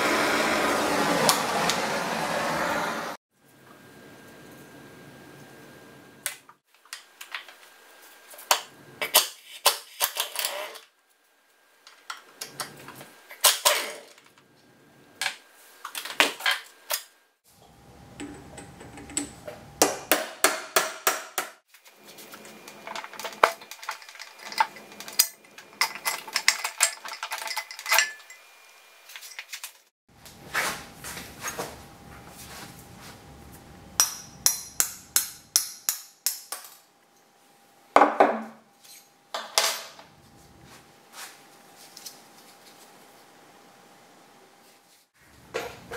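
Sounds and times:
metal tools clinking and knocking: 0:22.8 - 0:28.5.

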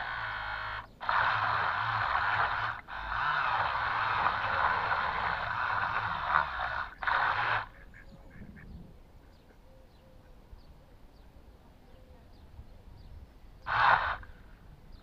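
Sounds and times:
toy boat electric motors running: 0:00.0 - 0:07.9, 0:13.6 - 0:14.6.

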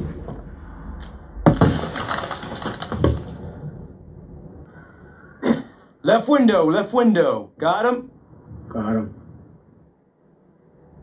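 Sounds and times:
low rumble: 0:00.0 - 0:05.4, 0:08.0 - 0:11.0.

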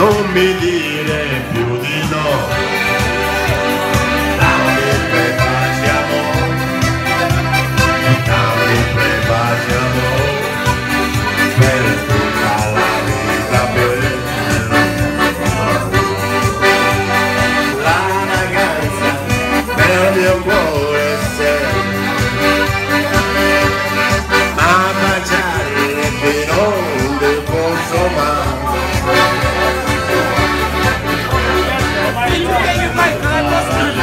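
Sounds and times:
accordions playing folk melody: 0:00.0 - 0:34.0.

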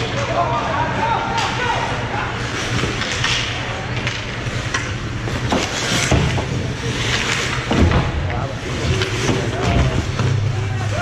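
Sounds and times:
skates scraping on ice: 0:02.4 - 0:11.0
knocks of sticks and puck: 0:02.6 - 0:11.0.

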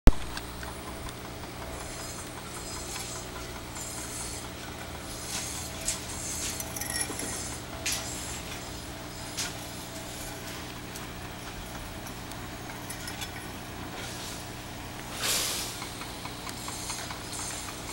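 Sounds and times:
low machine hum: 0:00.1 - 0:17.9
metallic clinks of steel: 0:06.6 - 0:07.5.

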